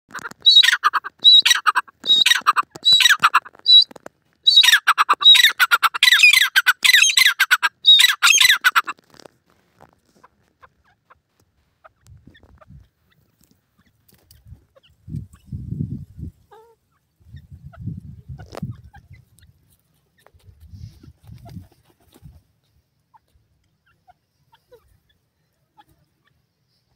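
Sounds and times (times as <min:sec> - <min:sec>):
francolin calling: 0:00.4 - 0:08.9.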